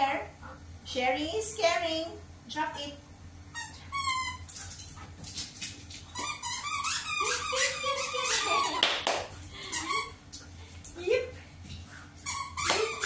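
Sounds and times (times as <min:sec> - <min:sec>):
dog whining and yipping: 0:06.2 - 0:08.8
hand clap: 0:08.8 - 0:09.3, 0:12.7 - 0:13.0.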